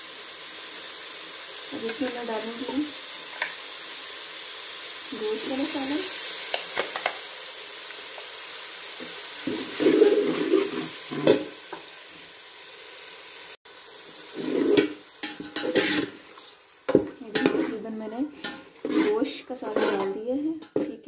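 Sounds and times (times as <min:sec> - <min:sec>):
curry sizzling in hot oil: 0:00.0 - 0:21.0
metal spatula scraping pot: 0:09.4 - 0:11.6, 0:14.3 - 0:21.0.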